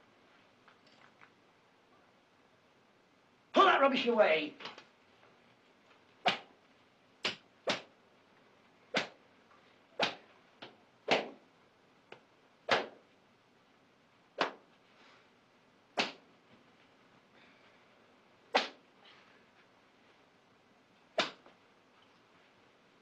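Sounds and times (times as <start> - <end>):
cane striking palms: 6.2 - 6.6, 7.2 - 7.9, 8.9 - 9.2, 10.0 - 11.4, 12.7 - 13.1, 14.4 - 14.7, 16.0 - 16.3, 18.5 - 18.8, 21.2 - 21.6.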